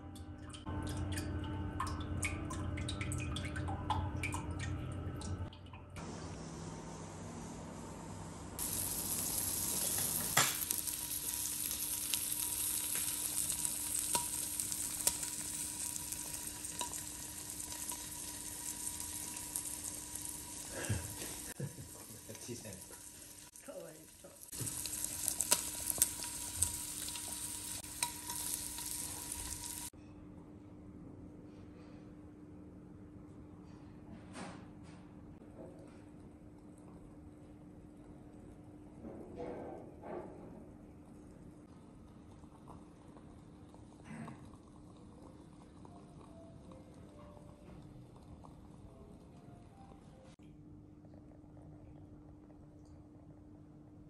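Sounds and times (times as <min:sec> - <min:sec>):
beef sizzling on hot plate: 0:08.6 - 0:29.9.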